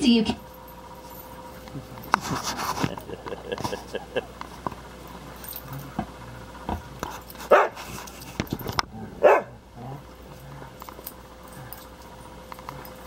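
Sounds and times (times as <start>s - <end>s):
dogs play-fighting: 0.5s - 13.0s
dog barking: 7.5s - 7.8s, 9.2s - 9.6s.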